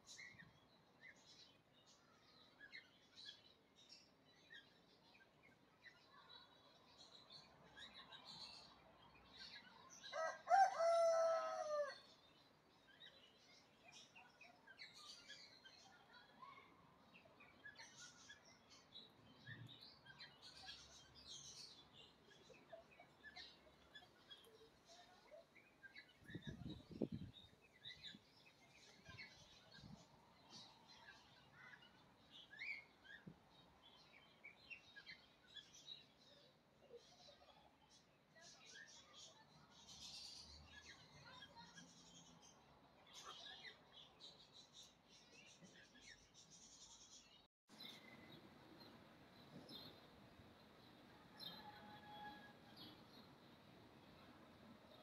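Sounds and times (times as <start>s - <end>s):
small birds chirping: 0.0s - 55.0s
rooster crowing: 10.2s - 12.0s, 51.2s - 52.8s.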